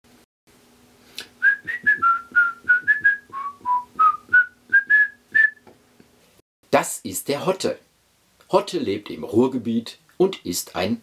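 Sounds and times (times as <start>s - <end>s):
faint steady hum: 0.1s - 11.0s
whistled tune: 1.4s - 5.6s.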